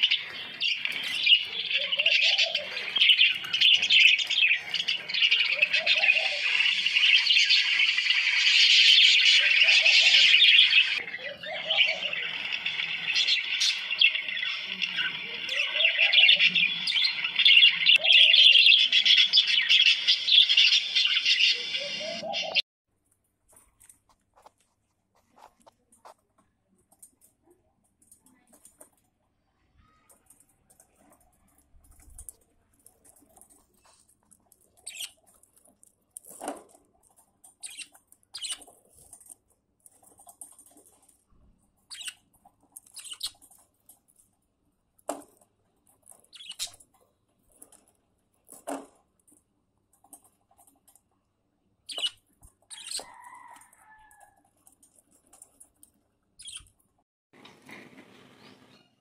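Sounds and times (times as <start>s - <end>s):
budgerigars chirping: 0.0s - 22.6s, 34.8s - 35.1s, 37.6s - 38.6s, 41.9s - 42.2s, 43.0s - 43.4s, 46.3s - 46.8s, 51.9s - 54.0s, 56.4s - 56.7s
wavering bird call: 1.0s - 4.2s, 5.1s - 7.0s, 21.3s - 22.6s.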